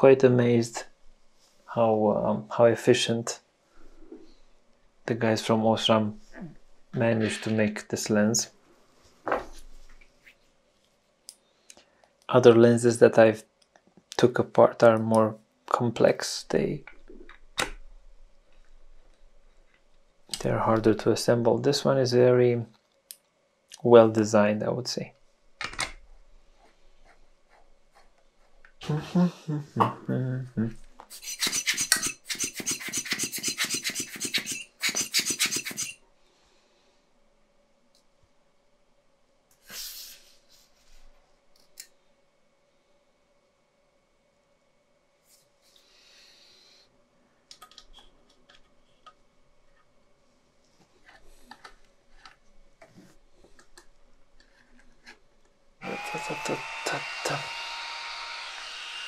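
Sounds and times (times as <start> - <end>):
screwdriver turning a screw: 31.1 - 36.0
cooling fan whirring: 55.8 - 59.0.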